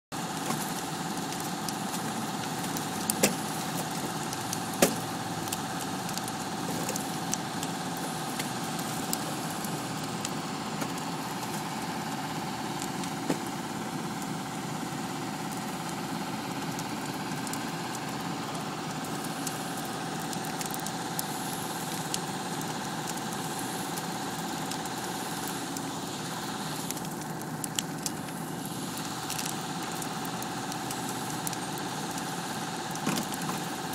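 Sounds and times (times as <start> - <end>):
fire engine engine running: 0.1 - 33.9
sharp pops: 0.4 - 7.8.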